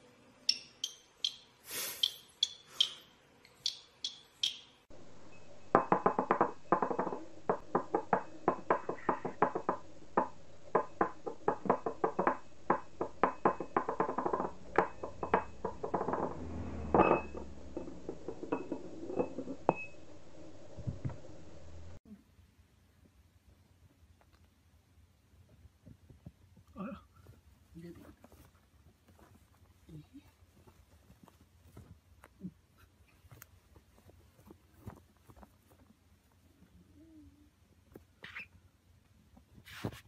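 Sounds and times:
budgerigar chirps: 0.5 - 4.7, 38.2 - 38.5.

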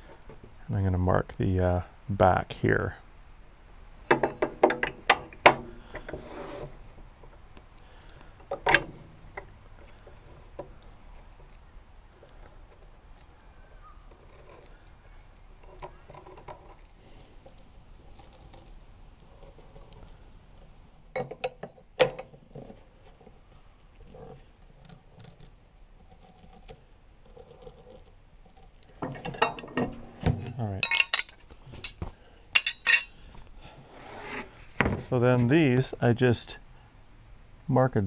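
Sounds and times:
metal brackets clinking and knocking: 4.1 - 6.2, 8.4 - 9.5, 21.1 - 22.6, 29.0 - 32.0, 32.6 - 33.1.

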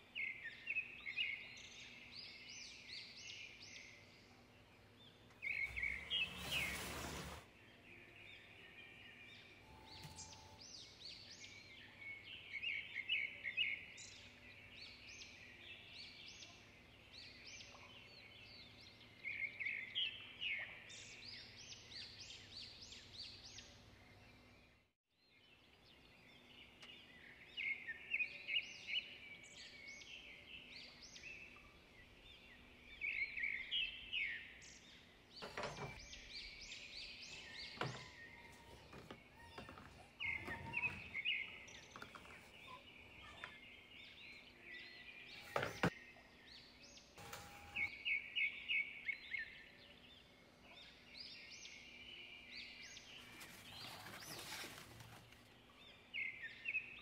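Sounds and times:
small birds chirping: 0.0 - 57.0
household items knocking and clattering: 45.5 - 45.9.

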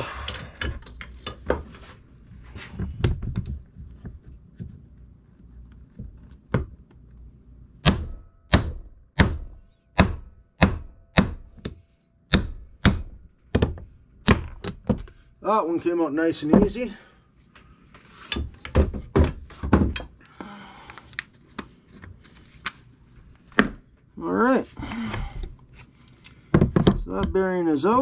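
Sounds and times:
hammer striking steel punch: 7.8 - 13.2.

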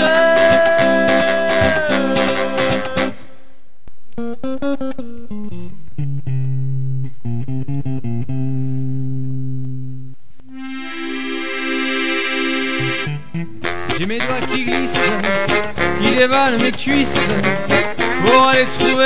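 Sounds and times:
plucked guitar notes: 4.2 - 19.0
bass line: 6.2 - 16.3
sustained instrument: 10.5 - 13.5.

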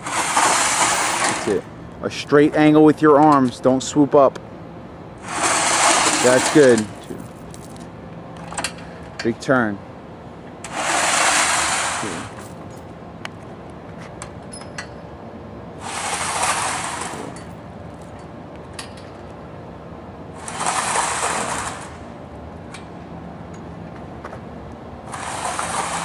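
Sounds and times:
steel sled scraping across concrete: 0.0 - 1.6, 5.2 - 7.2, 10.7 - 12.4, 15.8 - 17.4, 20.4 - 22.0, 25.1 - 26.0.

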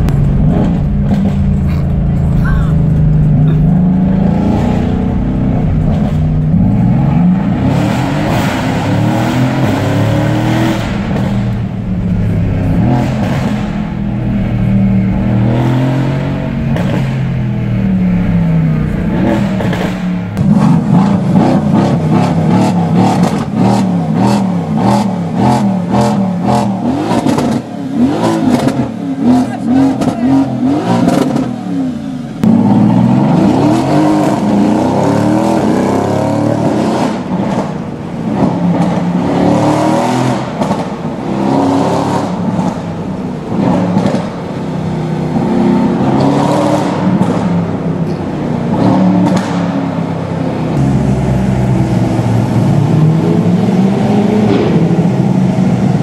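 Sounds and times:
exhaust crackles and pops: 0.0 - 3.8
car engine revving: 0.0 - 56.0.

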